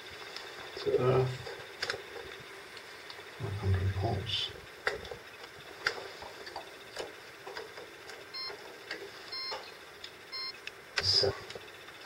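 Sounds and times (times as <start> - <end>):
test meter beeps: 8.3 - 8.6, 9.3 - 11.2.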